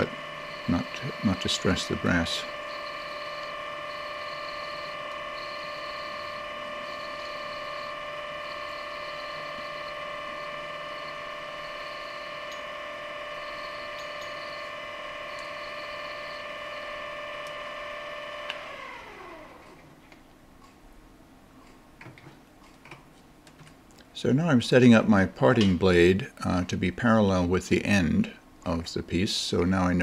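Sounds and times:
lathe motor whine: 0:00.0 - 0:19.8.

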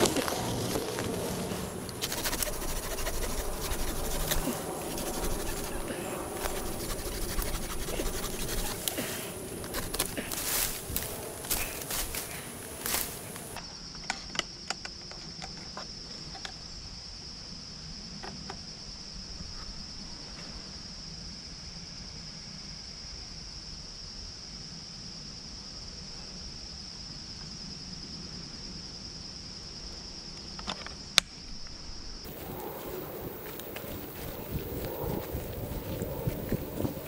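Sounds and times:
high insect chorus: 0:00.0 - 0:37.0.

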